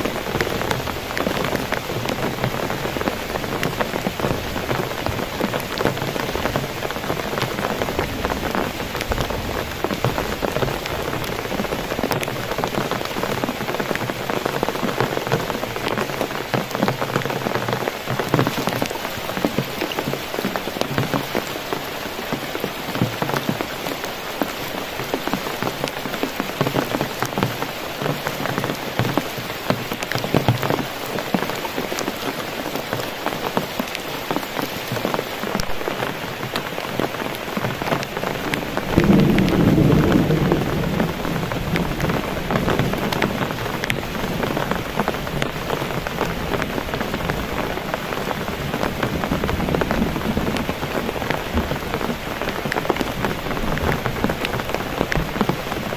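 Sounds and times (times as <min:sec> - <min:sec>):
heavy rain on a tarp: 0:00.0 - 0:55.9
low rumble of thunder: 0:38.8 - 0:44.0.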